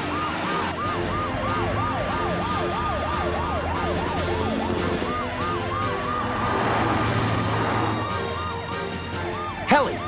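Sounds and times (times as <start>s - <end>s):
cartoon sirens wailing: 0.0s - 10.0s.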